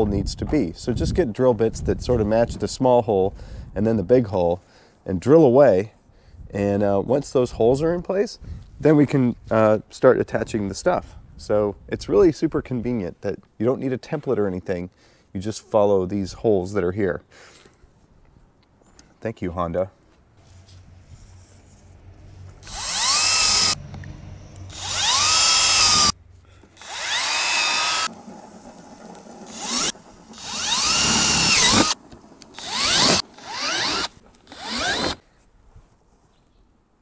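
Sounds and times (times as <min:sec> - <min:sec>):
power drill whining: 0:22.6 - 0:23.8, 0:24.6 - 0:35.2.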